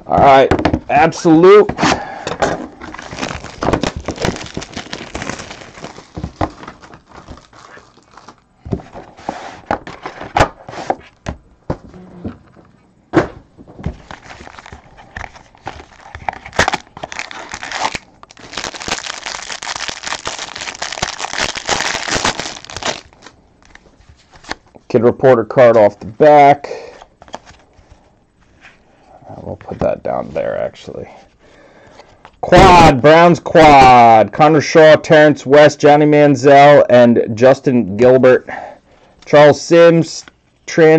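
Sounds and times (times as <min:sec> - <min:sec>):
cardboard packaging clicks and knocks: 0:02.9 - 0:07.6
wrapper crinkling and tearing: 0:02.9 - 0:08.4, 0:14.0 - 0:23.8.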